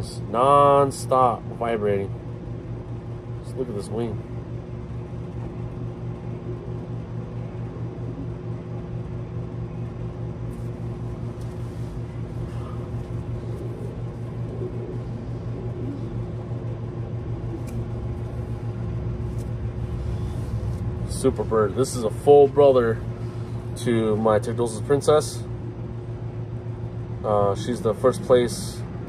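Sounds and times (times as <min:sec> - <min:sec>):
machine hum with flutter: 0:00.0 - 0:29.0.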